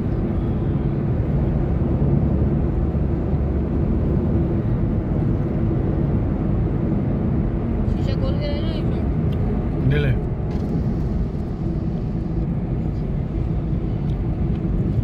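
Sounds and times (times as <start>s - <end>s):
car engine cruising: 0.0s - 15.0s
road noise: 0.0s - 15.0s.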